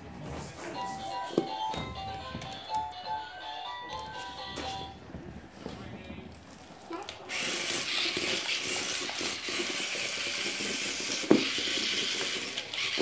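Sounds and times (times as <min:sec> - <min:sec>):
toy motor whirring and clattering: 0:06.9 - 0:13.0.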